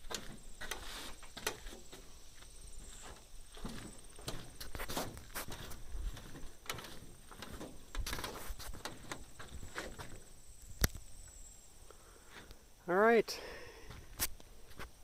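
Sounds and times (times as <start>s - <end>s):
rustling: 0.0s - 10.4s
uneven footsteps: 0.0s - 11.0s, 13.8s - 15.0s.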